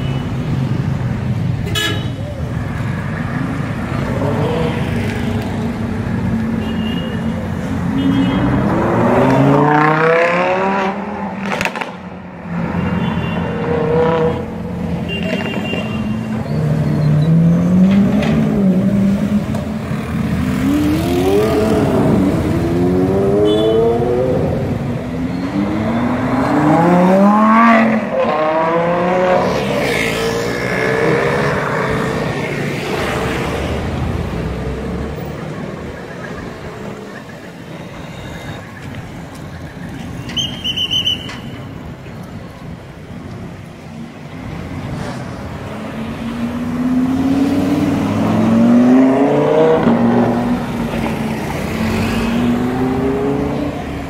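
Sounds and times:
street traffic noise: 0:00.0 - 0:54.0
sports car engines revving: 0:02.6 - 0:06.5, 0:07.6 - 0:12.6, 0:13.5 - 0:15.0, 0:16.3 - 0:37.1, 0:43.8 - 0:54.0.

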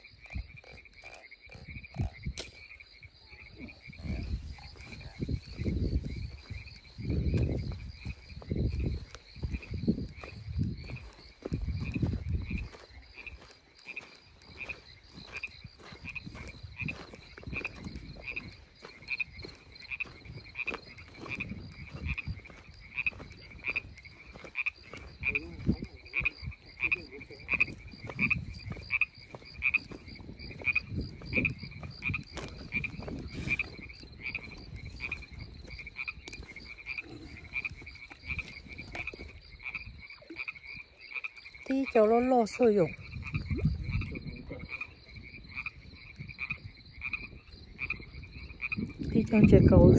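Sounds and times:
frogs calling in chorus: 0:00.0 - 0:49.9
footsteps on dirt and grass: 0:03.9 - 0:39.8.

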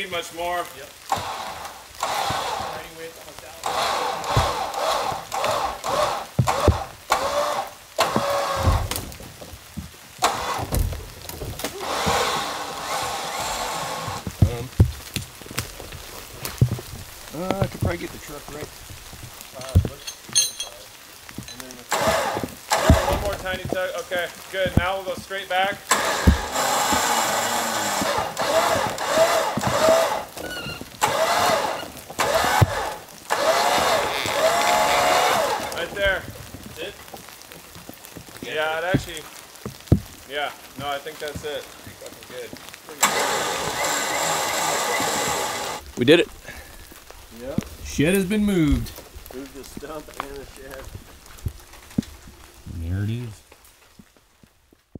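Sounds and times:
shed scraping and creaking: 0:00.0 - 0:54.9
winch pulling: 0:01.0 - 0:09.4, 0:10.2 - 0:37.0, 0:42.9 - 0:52.2
winch squealing: 0:01.1 - 0:09.0, 0:11.6 - 0:14.3, 0:21.4 - 0:23.7, 0:25.9 - 0:36.2, 0:43.0 - 0:45.8
dull knocks: 0:04.2 - 0:20.0, 0:21.3 - 0:25.3, 0:25.9 - 0:36.7.

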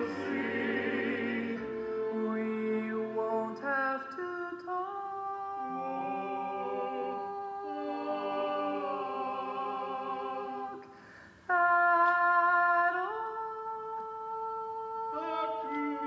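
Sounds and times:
men singing in close harmony: 0:00.0 - 0:03.8, 0:05.6 - 0:10.8.

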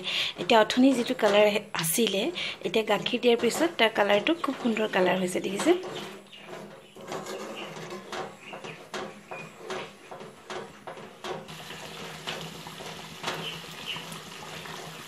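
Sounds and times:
wooden spatula scraping a pan: 0:02.7 - 0:13.6.

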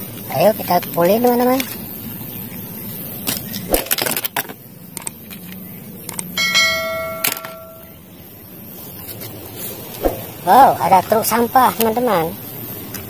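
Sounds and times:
bell-like chime: 0:06.4 - 0:07.9.

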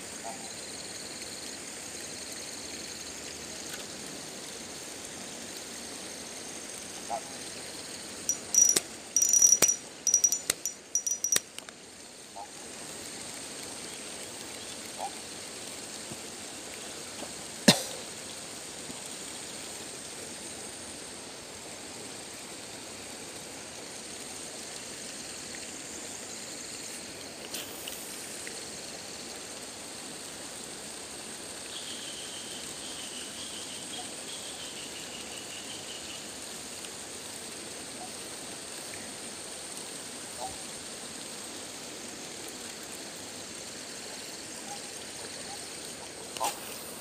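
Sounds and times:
faint wavering high call: 0:08.3 - 0:11.5
river water flowing over rocks: 0:08.3 - 0:11.7
high insect drone: 0:24.0 - 0:30.0.

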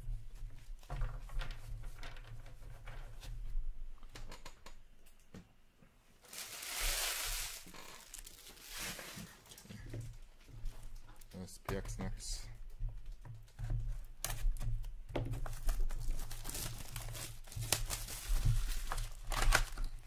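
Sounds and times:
loud rustling scrape: 0:06.3 - 0:09.4.

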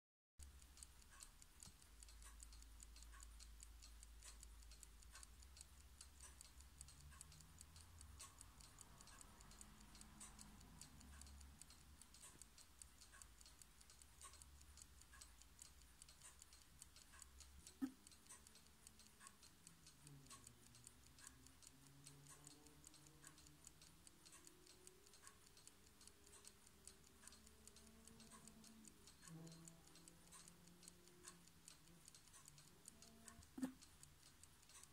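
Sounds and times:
clock mechanism ticking: 0:00.4 - 0:34.9.

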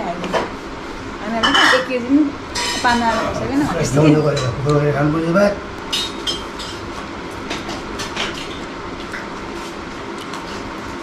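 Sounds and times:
steady background noise: 0:00.0 - 0:11.0
wet chewing smacks: 0:10.1 - 0:10.7.

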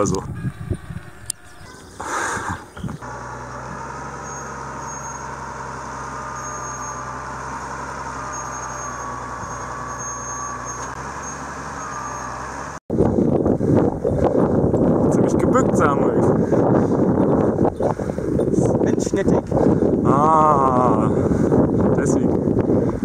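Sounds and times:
thin wavering hydraulic whine: 0:00.0 - 0:13.4
tractor diesel engine running: 0:00.0 - 0:23.0.

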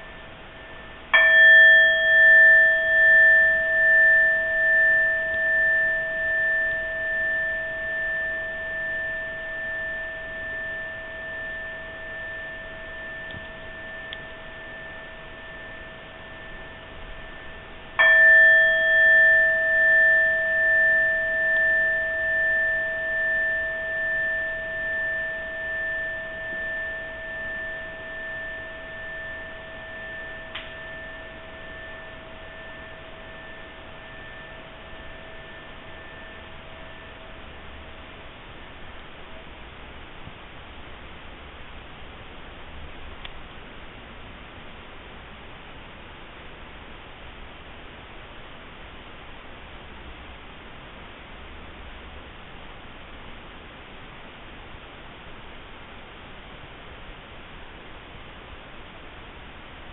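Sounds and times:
hand bell ringing: 0:01.2 - 0:38.1.

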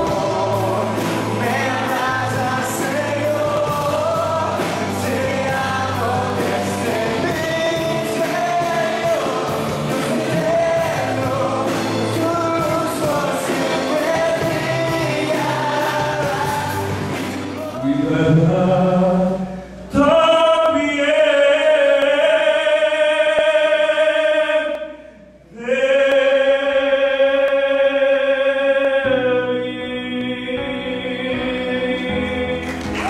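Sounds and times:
worship band with drums: 0:00.0 - 0:33.0
man singing long notes: 0:17.6 - 0:33.0.

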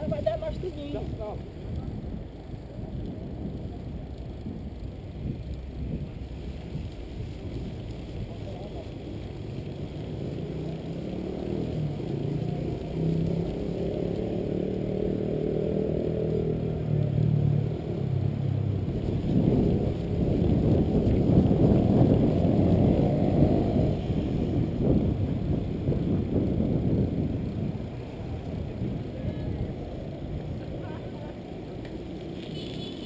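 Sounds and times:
wind buffeting microphone: 0:00.0 - 0:09.4, 0:18.0 - 0:31.4
bike tyre hum on asphalt: 0:00.0 - 0:33.0.

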